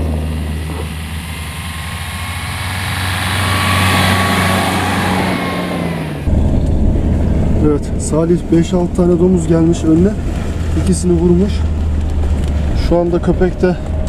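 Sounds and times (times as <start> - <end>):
engine heard inside cab: 0.0 - 14.0
pickup truck engine passing: 0.0 - 14.0
tyres on snow: 9.2 - 14.0.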